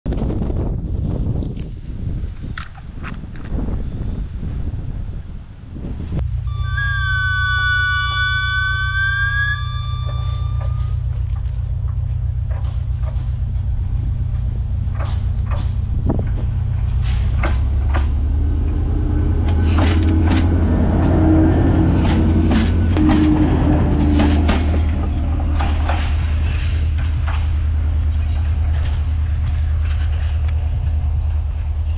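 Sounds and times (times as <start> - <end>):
locomotive engine drone: 6.2 - 31.9
multi-tone train horn: 6.5 - 11.1, 22.9 - 25.6
wheels clicking on rail joints: 6.7 - 31.9.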